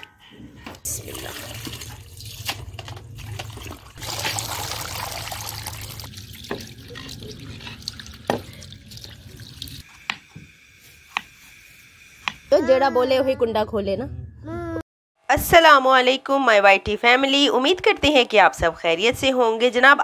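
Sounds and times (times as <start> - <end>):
hose water splashing into pot: 0.9 - 10.2.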